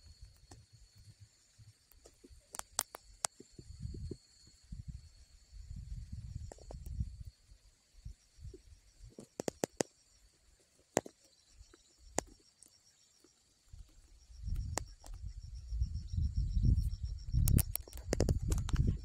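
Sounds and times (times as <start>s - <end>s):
high pulsing insect chirr: 0.0s - 19.0s
sharp clicks and knocks: 9.2s - 9.9s, 17.4s - 19.0s.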